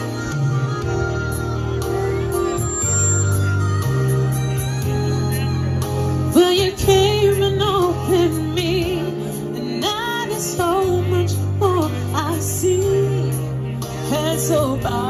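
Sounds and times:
instrumental accompaniment with bass: 0.0s - 15.0s
woman singing soulful song: 6.3s - 15.0s.

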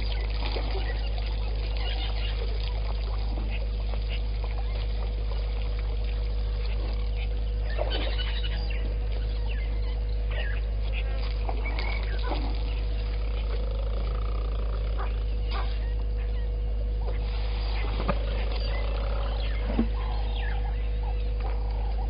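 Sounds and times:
faint constant tone: 0.0s - 22.0s
low electrical hum: 0.0s - 22.0s
short bird calls: 6.6s - 21.9s.

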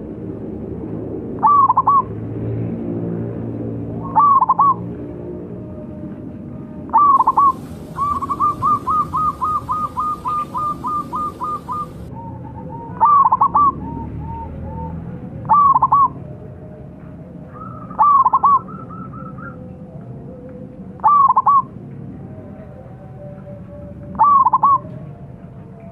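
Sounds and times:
dove cooing: 1.4s - 2.1s, 4.0s - 4.9s, 6.9s - 16.2s, 17.5s - 19.5s, 21.0s - 21.7s, 24.1s - 24.9s.

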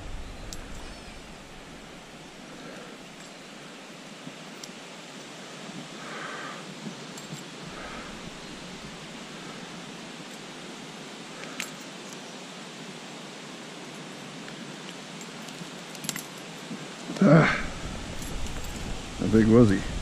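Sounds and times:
steady outdoor rushing noise: 0.0s - 11.5s, 16.7s - 20.0s
faint clicks: 0.4s - 0.9s.

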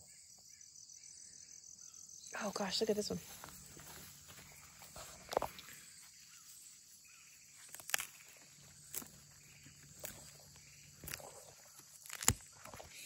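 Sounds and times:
insect chirring: 0.0s - 13.0s
hands rustling through leaves: 3.2s - 13.0s.

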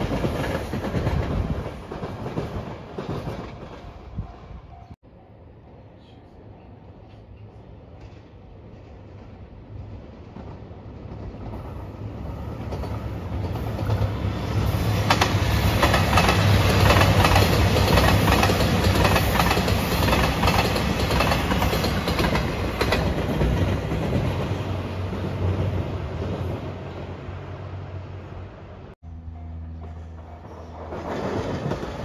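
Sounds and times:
train running noise: 0.0s - 32.0s
diesel train engine drone: 9.6s - 32.0s.

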